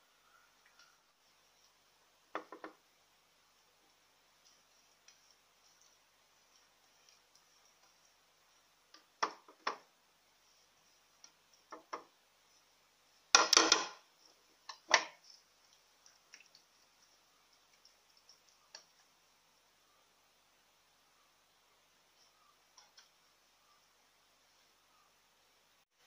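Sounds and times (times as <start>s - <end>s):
dishes knocking and clinking: 13.4s - 14.0s.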